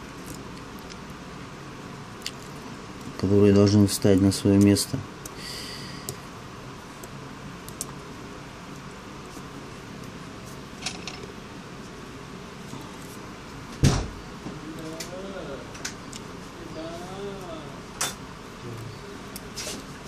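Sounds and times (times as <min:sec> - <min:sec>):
loud thump: 0:13.8 - 0:14.2.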